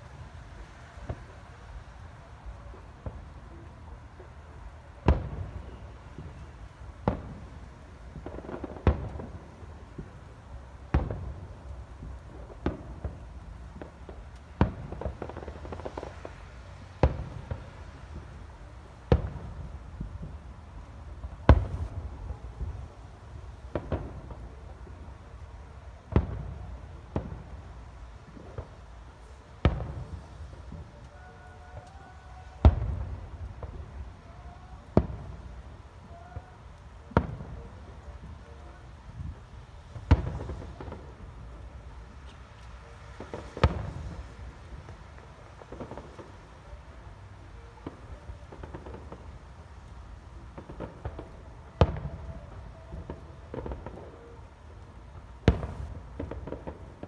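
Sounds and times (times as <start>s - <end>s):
firework shells booming: 55.4s - 57.0s.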